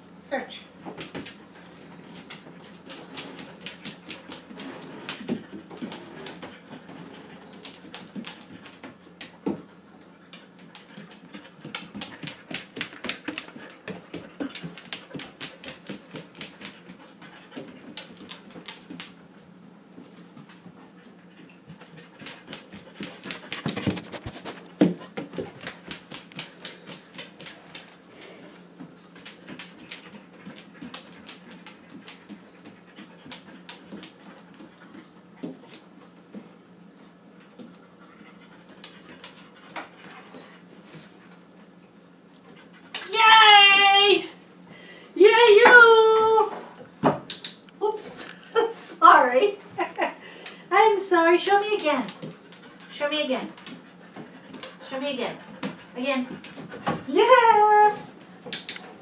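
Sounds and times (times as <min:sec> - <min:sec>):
dog panting rapidly: 0:01.1 - 0:18.9, 0:20.4 - 0:27.9, 0:29.1 - 0:35.8, 0:37.6 - 0:40.7, 0:51.1 - 0:57.0
claws clicking on tile floor: 0:47.3 - 0:47.7, 0:58.5 - 0:59.0.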